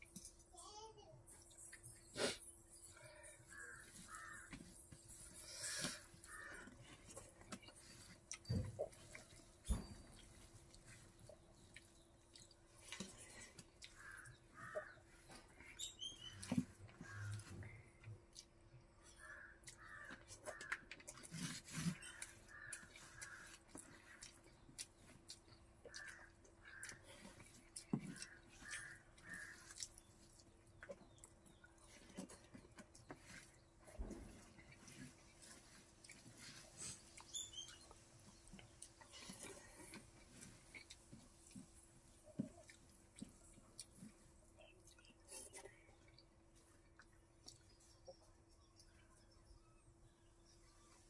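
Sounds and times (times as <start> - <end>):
person eating rice by hand: 1.4 - 49.3
faint crow calls: 3.0 - 4.8, 6.1 - 7.0, 13.8 - 15.4, 16.9 - 17.6, 19.0 - 21.0, 22.0 - 24.3, 25.9 - 27.4, 28.1 - 29.9
crow cawing: 3.6 - 4.5.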